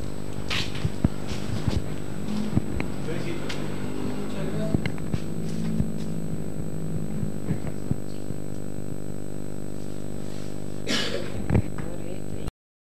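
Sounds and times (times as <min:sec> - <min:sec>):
electrical mains hum: 0:00.0 - 0:12.5
thin high whine: 0:00.0 - 0:12.5.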